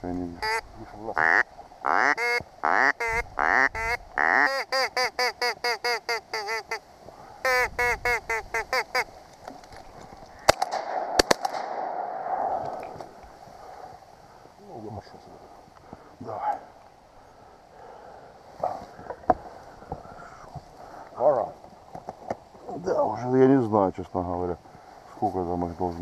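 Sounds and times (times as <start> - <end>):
duck call quacking: 0.4 - 0.6, 1.2 - 6.8, 7.4 - 9.1
rustling: 8.2 - 11.8, 18.4 - 23.3
sharp clicks: 10.4 - 13.3.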